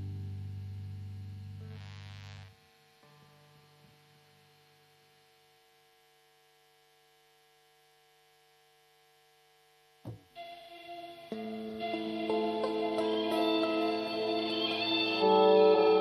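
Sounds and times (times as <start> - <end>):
music: 0.0 - 5.2, 10.1 - 16.0
faint electrical hum: 0.0 - 16.0
sudden pop: 10.0 - 10.3.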